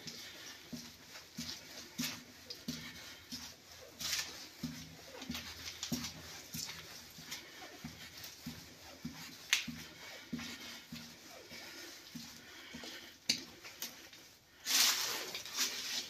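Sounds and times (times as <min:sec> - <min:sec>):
footsteps echoing in tunnel: 0:00.0 - 0:16.0.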